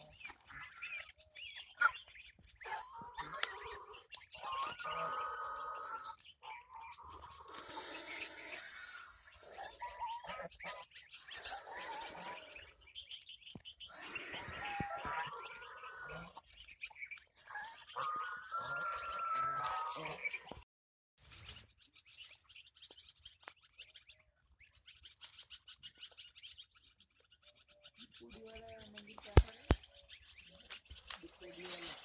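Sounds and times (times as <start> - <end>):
ducklings peeping: 0.0 - 20.6
ducks hissing: 2.9 - 13.0, 13.8 - 16.4, 17.4 - 19.6, 29.2 - 29.9, 31.4 - 32.0
throaty duck calls: 13.9 - 16.4.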